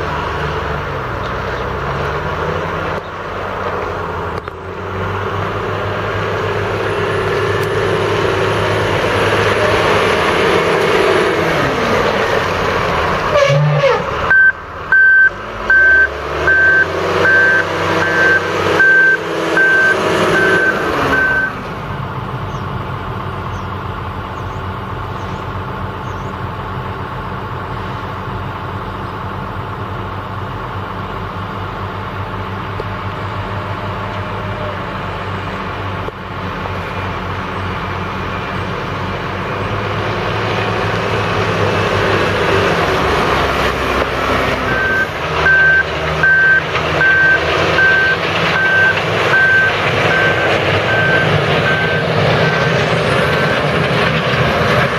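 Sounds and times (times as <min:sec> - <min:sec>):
loader diesel engine running: 0:00.0 - 0:54.9
back-up alarm beeping: 0:14.3 - 0:21.6, 0:44.7 - 0:52.1.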